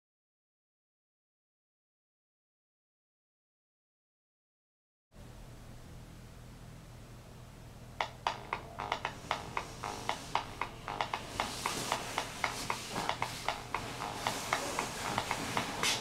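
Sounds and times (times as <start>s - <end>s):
low steady hum: 5.2s - 16.0s
sharp tapped clicks: 8.0s - 16.0s.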